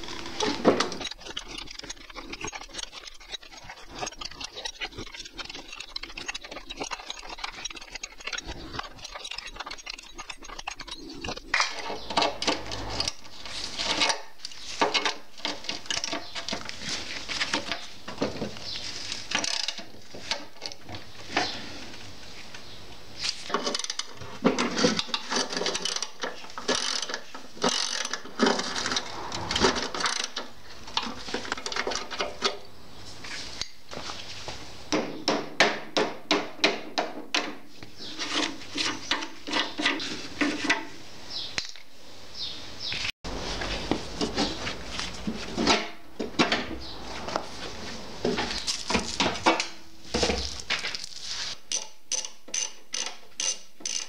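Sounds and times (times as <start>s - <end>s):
metal knocks and scrapes: 0.0s - 4.5s, 8.5s - 21.9s, 23.3s - 32.6s
hand ratchet clicking: 25.4s - 29.0s, 51.7s - 54.0s.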